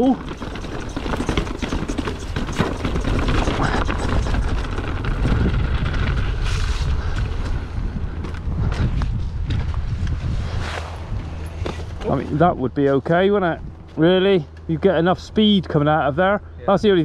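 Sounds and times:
tyres rolling over stones: 0.0 - 7.6
wind buffeting microphone: 0.0 - 12.8
bike rattling: 0.0 - 16.2.

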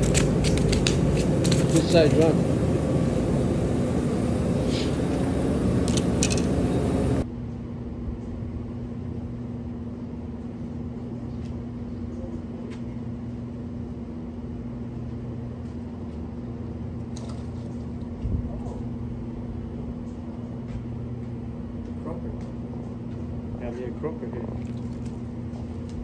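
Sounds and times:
handling clicks: 0.0 - 2.3, 5.8 - 6.5
low mechanical hum: 0.0 - 26.0.

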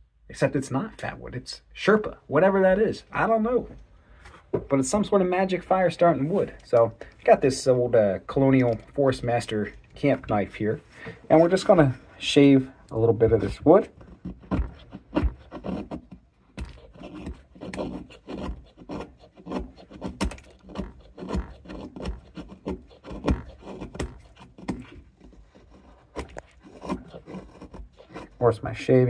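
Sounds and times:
knife shaving wood: 12.9 - 29.0.

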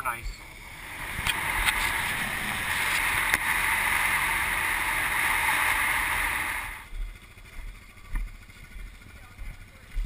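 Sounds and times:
tyres on gravel: 0.2 - 6.9.

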